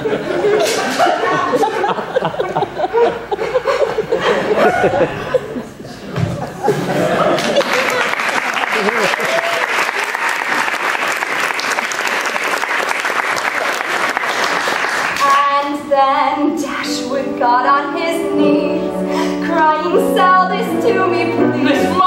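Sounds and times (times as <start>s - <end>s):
applause: 7.3s - 15.4s
ensemble singing together: 16.5s - 22.0s.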